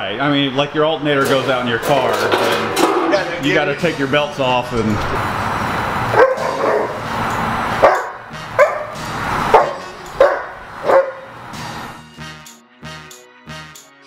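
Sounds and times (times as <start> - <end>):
dog barking: 6.1 - 7.0, 7.8 - 11.3.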